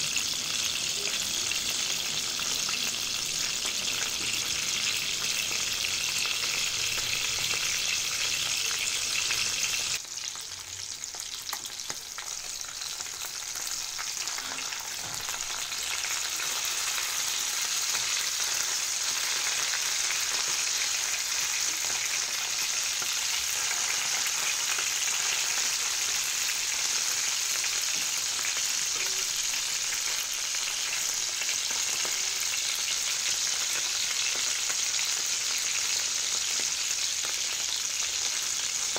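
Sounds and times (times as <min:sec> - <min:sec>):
fish frying in hot oil: 0:00.0 - 0:38.9.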